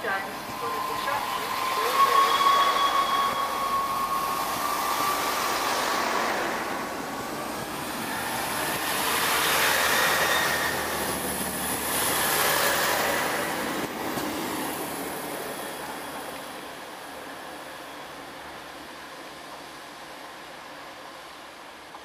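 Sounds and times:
diesel train engines running: 0:00.0 - 0:22.0
train wheels rolling on rails: 0:00.2 - 0:20.2.

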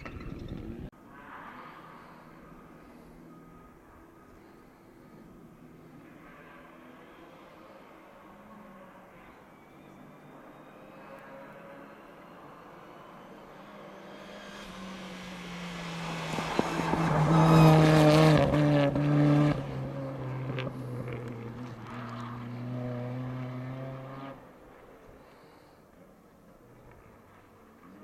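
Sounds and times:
rally car engine revving: 0:13.0 - 0:24.5.

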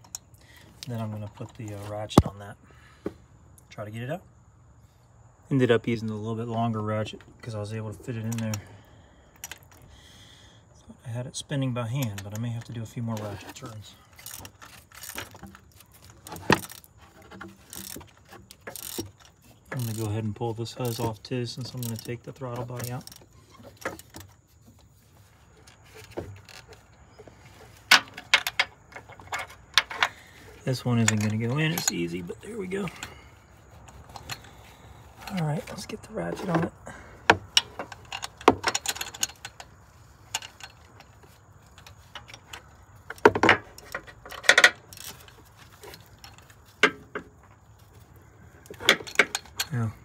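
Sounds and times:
metal tools clinking on engine parts: 0:11.8 - 0:24.8, 0:25.4 - 0:50.0
ratchet clicking on metal: 0:14.1 - 0:16.9, 0:17.5 - 0:22.1, 0:22.7 - 0:24.2.

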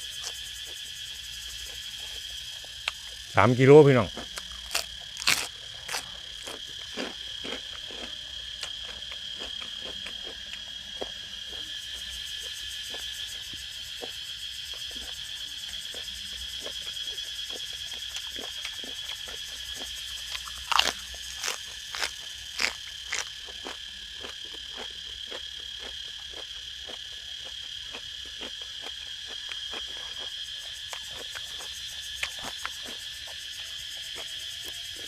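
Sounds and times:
cicadas buzzing: 0:00.0 - 0:35.0
person chewing food: 0:01.6 - 0:03.2, 0:04.1 - 0:11.7, 0:17.5 - 0:33.4.

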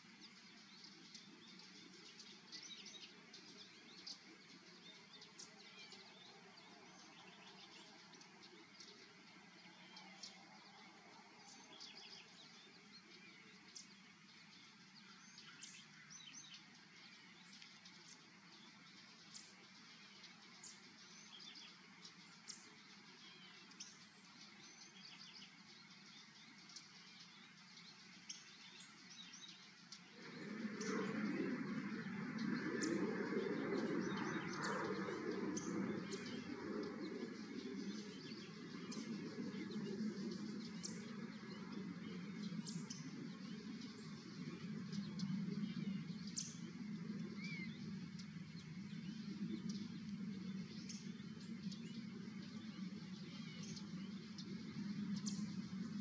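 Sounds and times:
small birds chirping: 0:00.0 - 0:56.0
loud steady rushing noise: 0:30.0 - 0:56.0.

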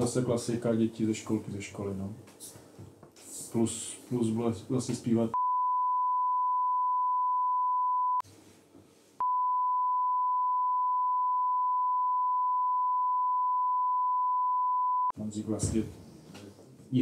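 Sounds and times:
censor bleep tone: 0:05.4 - 0:08.2, 0:09.2 - 0:15.2.

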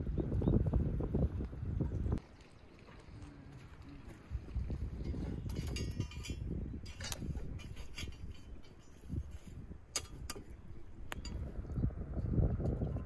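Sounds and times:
iron clinking and scraping: 0:04.6 - 0:11.5.

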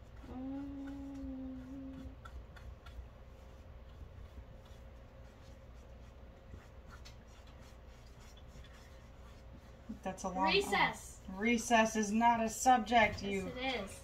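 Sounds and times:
person humming hmm: 0:00.2 - 0:02.3.

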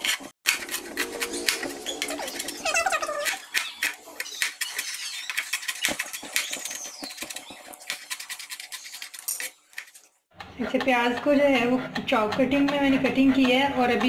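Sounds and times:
knife chopping on plastic board: 0:10.4 - 0:14.0.

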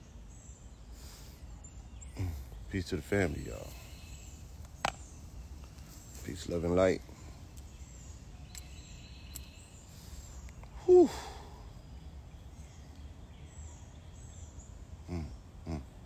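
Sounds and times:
birds chirping faintly: 0:00.0 - 0:16.0
outdoor background noise: 0:00.0 - 0:16.0
man exhaling whew: 0:10.8 - 0:11.6.

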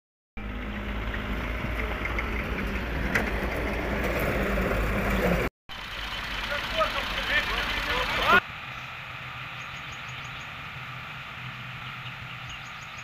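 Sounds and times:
excavator diesel engine rumbling: 0:00.4 - 0:09.8.

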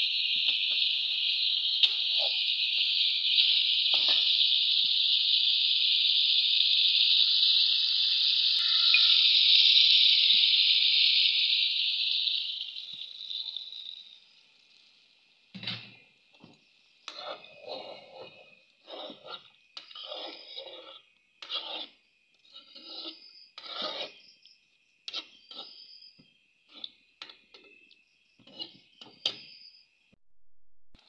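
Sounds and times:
faint steady hiss: 0:00.0 - 0:17.4
rasping scrapes: 0:17.1 - 0:24.2, 0:25.1 - 0:25.9, 0:28.4 - 0:28.8.

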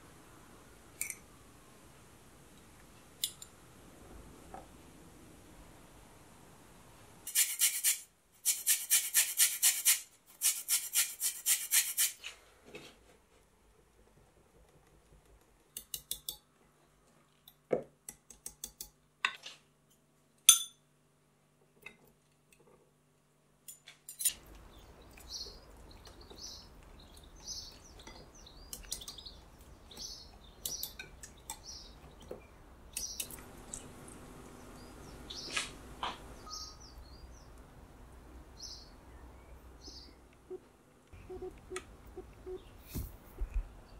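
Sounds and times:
faint birds chirping: 0:24.3 - 0:43.9.

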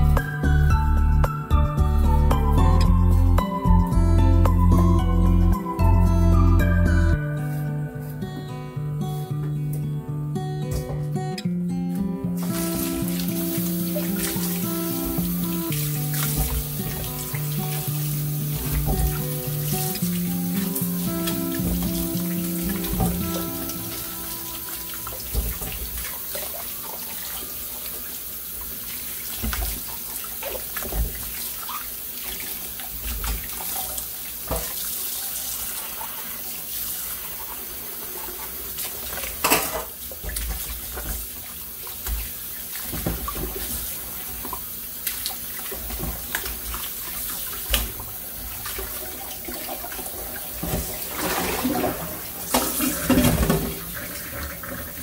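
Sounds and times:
knocks and splashes: 0:12.4 - 0:23.9, 0:25.0 - 0:26.6, 0:29.2 - 0:34.8, 0:38.8 - 0:55.0
tap water running into sink: 0:12.4 - 0:55.0.

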